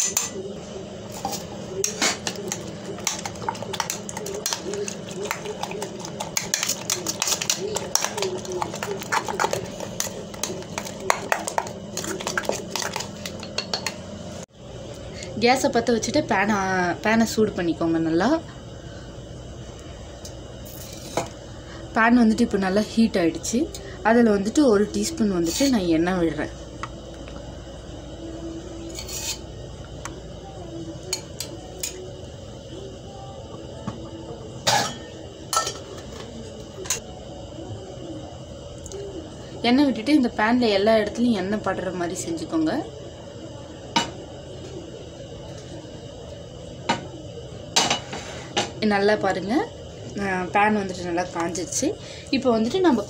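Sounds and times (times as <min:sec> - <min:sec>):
metal spoon scraping steel bowl: 0:28.9 - 0:29.5.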